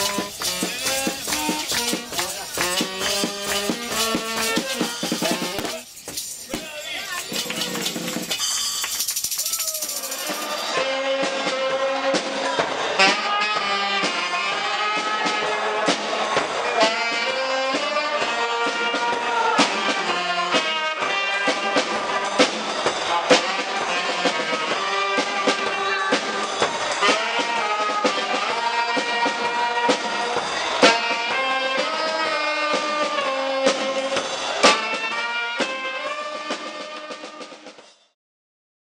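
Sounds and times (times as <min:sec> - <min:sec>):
brass band music with saxophone: 0:00.0 - 0:08.6, 0:10.0 - 0:37.8
drum hits: 0:00.0 - 0:09.3.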